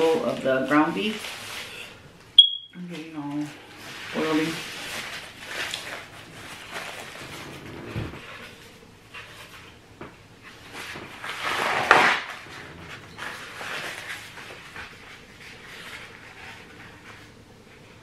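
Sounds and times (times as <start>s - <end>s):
paper towels rustling: 0.0s - 2.2s, 2.8s - 18.0s
paper towel ripping: 3.4s - 9.6s, 10.5s - 17.4s.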